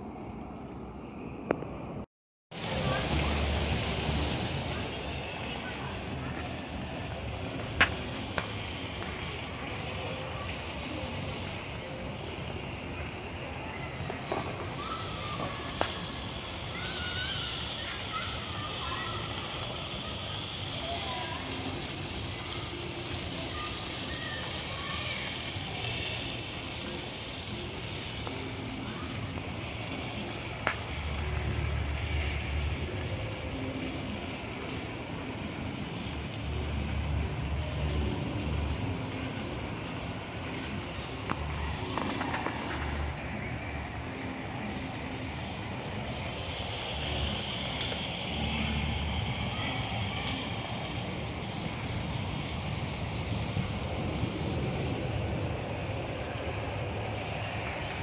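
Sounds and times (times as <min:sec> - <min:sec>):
faint distant voices: 0:00.0 - 0:58.0
steady background noise: 0:00.0 - 0:58.0
low outdoor rumble: 0:25.6 - 0:58.0.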